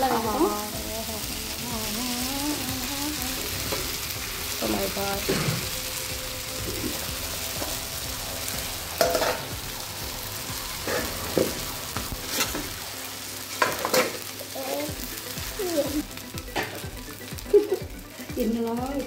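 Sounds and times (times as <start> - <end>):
dosa sizzling on a griddle: 0.0 - 19.0
metal spatula scraping griddle: 9.0 - 9.6, 10.6 - 12.8.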